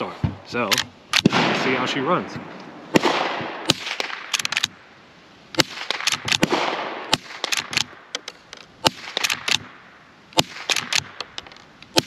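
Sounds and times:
rifle lever clatter: 0.7s - 1.3s, 4.3s - 4.8s, 5.9s - 6.5s, 7.4s - 9.6s, 10.6s - 12.0s
rifle shots: 0.7s - 4.8s, 5.6s - 9.8s, 10.4s - 12.0s.

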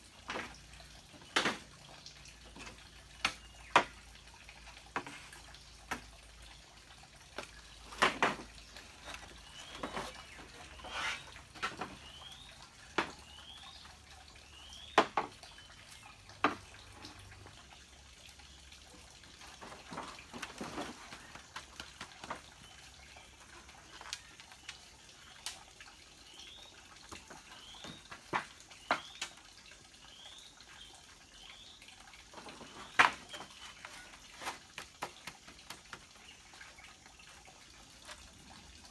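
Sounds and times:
bamboo poles knocking together: 0.2s - 4.1s, 4.8s - 6.2s, 7.3s - 13.5s, 14.8s - 15.4s, 16.4s - 17.3s, 19.6s - 22.8s, 27.1s - 29.4s, 32.3s - 36.2s.

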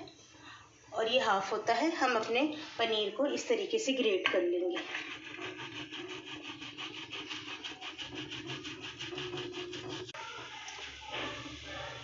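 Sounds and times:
cheese rasping on metal grater: 4.8s - 10.2s.

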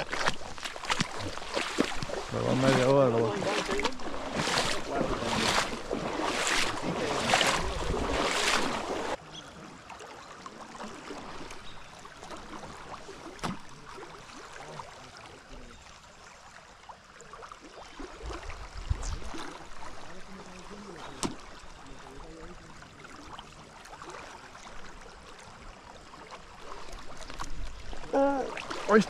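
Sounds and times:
quiet river background: 0.0s - 29.0s
rushing water: 0.0s - 29.0s
wind noise: 4.0s - 9.1s, 18.2s - 19.5s.

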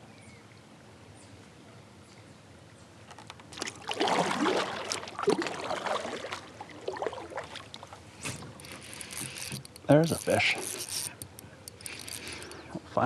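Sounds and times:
water splashing and gurgling: 3.2s - 11.0s.

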